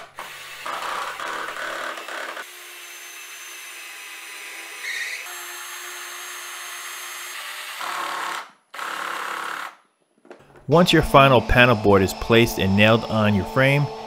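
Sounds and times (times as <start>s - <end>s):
cordless drill driving screws: 0.0s - 9.8s.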